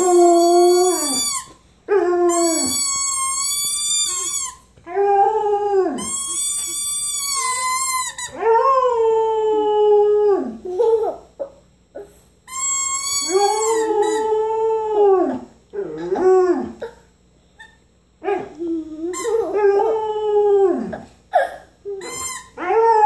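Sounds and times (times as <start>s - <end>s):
dog howling: 0.0s - 3.3s, 13.2s - 17.0s, 18.2s - 21.1s.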